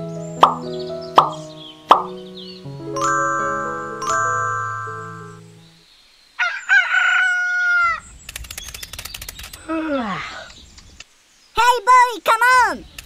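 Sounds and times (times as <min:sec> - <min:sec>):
rooster crowing: 0:06.4 - 0:08.0
rapid sharp clicks: 0:08.2 - 0:09.6.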